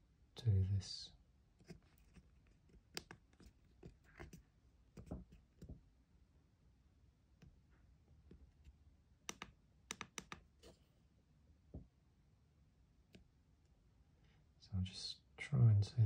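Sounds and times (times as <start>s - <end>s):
faint clicks and taps: 1.6s - 5.8s, 7.4s - 10.8s.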